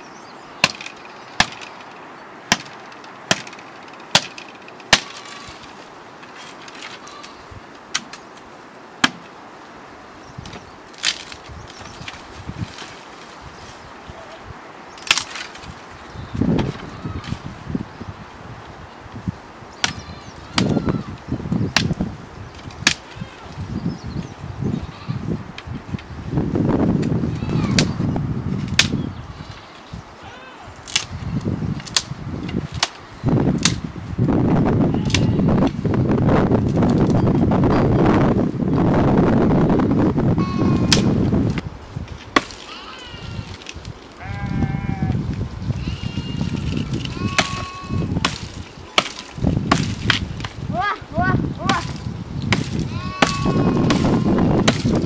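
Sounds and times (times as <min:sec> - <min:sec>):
dry branches rustling: 0:00.0 - 0:55.0
sickle chopping tree stem: 0:00.6 - 0:01.8, 0:02.5 - 0:05.5, 0:07.9 - 0:09.3, 0:10.4 - 0:13.0, 0:15.0 - 0:15.8, 0:19.8 - 0:20.8, 0:21.7 - 0:22.0, 0:22.7 - 0:23.2, 0:27.0 - 0:28.0, 0:28.6 - 0:29.0, 0:30.8 - 0:31.2, 0:31.8 - 0:33.0, 0:33.6 - 0:33.9, 0:35.0 - 0:35.8, 0:40.8 - 0:42.8, 0:46.4 - 0:50.6, 0:51.6 - 0:55.0
wind on microphone: 0:11.4 - 0:14.7, 0:15.6 - 0:55.0.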